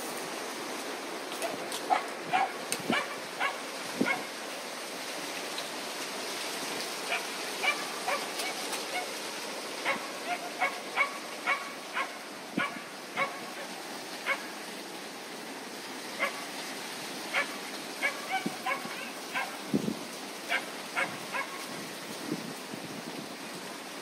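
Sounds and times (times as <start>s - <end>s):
steady background hiss: 0.0s - 24.0s
dog barking: 1.4s - 4.3s, 7.1s - 9.2s, 9.8s - 14.4s, 16.2s - 16.4s, 17.3s - 19.6s, 20.5s - 21.6s.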